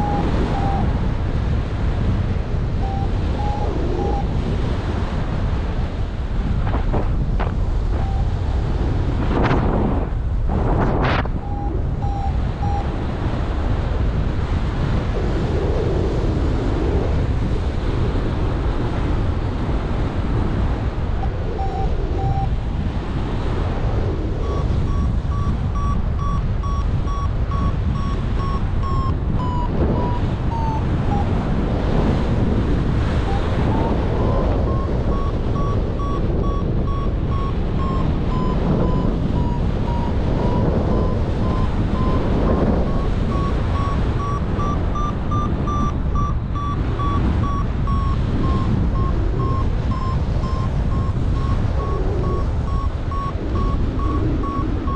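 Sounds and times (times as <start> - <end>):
variometer beeping: 0.0 - 1.1, 2.8 - 4.8, 7.4 - 8.8, 11.3 - 13.4, 21.2 - 22.7, 24.1 - 54.9
wind buffeting microphone: 0.0 - 54.9.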